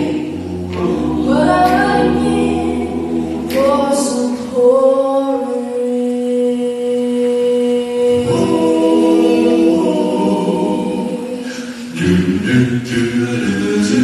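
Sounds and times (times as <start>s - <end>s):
vocal quartet singing a cappella: 0.0s - 14.0s.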